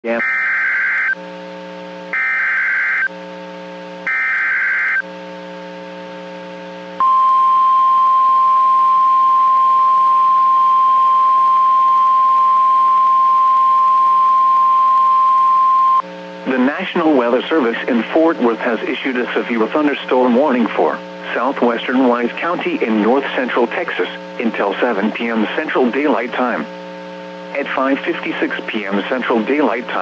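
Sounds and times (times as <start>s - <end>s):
steady radio warning tone: 0.0s - 1.2s, 27.4s - 30.0s
buzzy digital data bursts: 4.1s - 5.0s.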